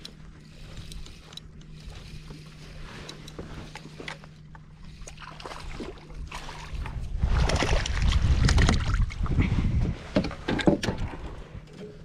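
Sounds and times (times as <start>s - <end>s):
water splashing and slapping: 4.9s - 11.2s
wind buffeting microphone: 5.7s - 11.7s.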